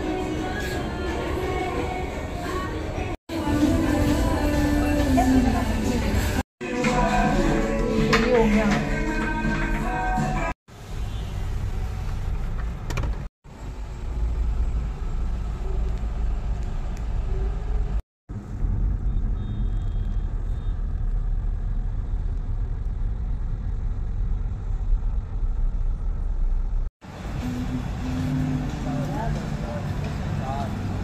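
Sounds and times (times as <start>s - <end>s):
road and engine rumble in car: 10.7s - 31.0s.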